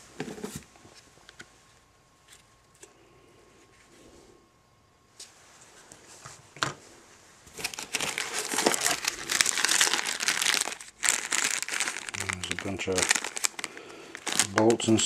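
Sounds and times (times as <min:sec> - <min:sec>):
plastic bag crinkling: 0:07.5 - 0:15.0.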